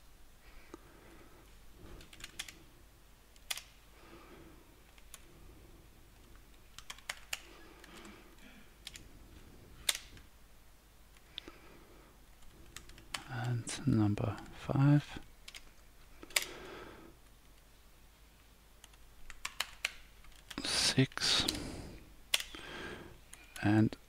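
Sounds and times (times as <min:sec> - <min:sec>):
keyboard typing: 0:02.0 - 0:02.6, 0:06.2 - 0:08.2, 0:12.4 - 0:13.3.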